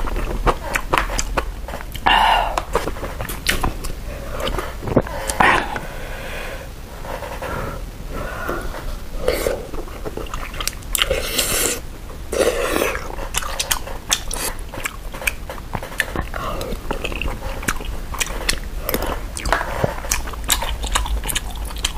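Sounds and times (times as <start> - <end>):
chewing: 0.0 - 5.8, 8.7 - 21.9
noodle slurping: 7.4 - 14.6.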